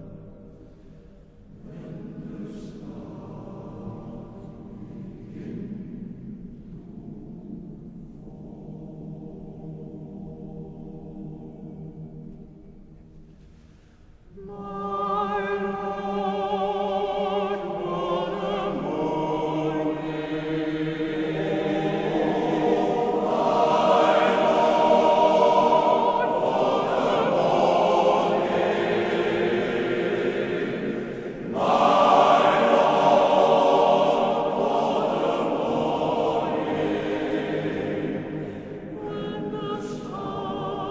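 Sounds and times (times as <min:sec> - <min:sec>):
male choir singing: 0:01.5 - 0:05.9, 0:14.4 - 0:40.9.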